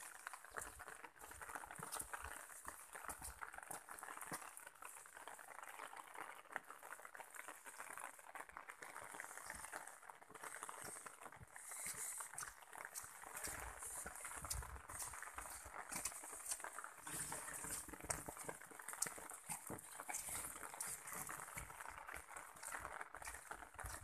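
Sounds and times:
footsteps on wet dirt path: 0:00.2 - 0:04.6, 0:10.4 - 0:24.0.

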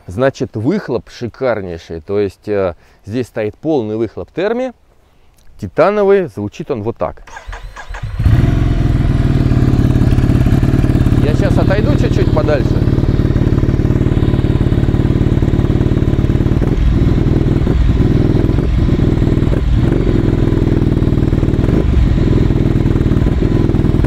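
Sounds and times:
motorcycle engine idling: 0:07.3 - 0:24.0.

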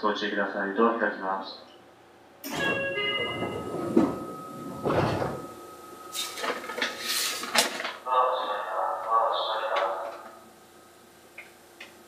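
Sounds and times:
train doors opening rush: 0:02.4 - 0:08.0
short bursts of hiss: 0:07.0 - 0:07.5.

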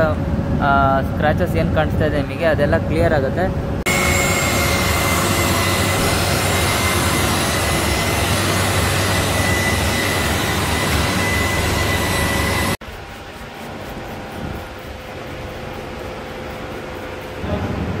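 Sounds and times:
rotary polisher whining on glass: 0:03.9 - 0:17.6.

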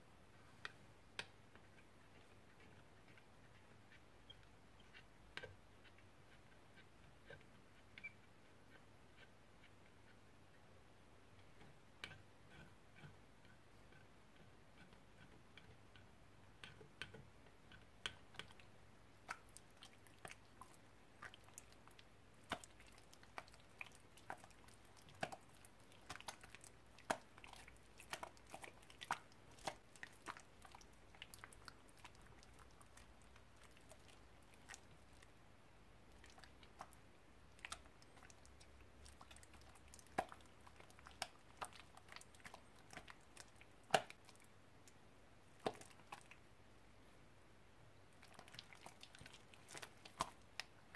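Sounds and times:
spoon stirring slime in bowl: 0:11.4 - 0:35.4, 0:36.0 - 0:46.4, 0:48.2 - 0:50.9
wet clicks and pops of slime: 0:39.2 - 0:44.2.

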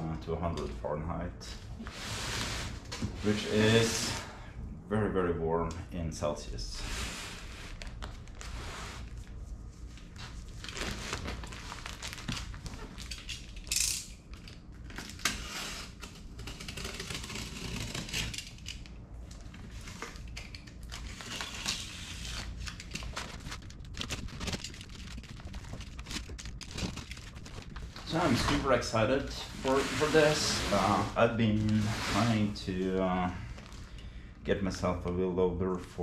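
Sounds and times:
plastic wrap crinkling: 0:10.0 - 0:13.7, 0:16.4 - 0:34.0
cardboard scraping on wood: 0:21.1 - 0:32.6.

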